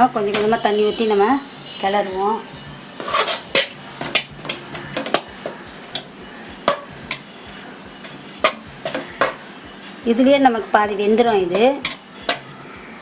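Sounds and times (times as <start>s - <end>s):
metal spoon scraping a pan: 2.9s - 6.1s.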